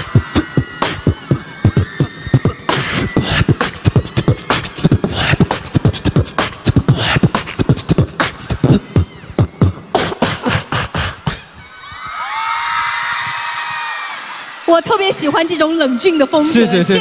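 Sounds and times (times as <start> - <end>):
beatboxing into microphone: 0.0 - 11.6.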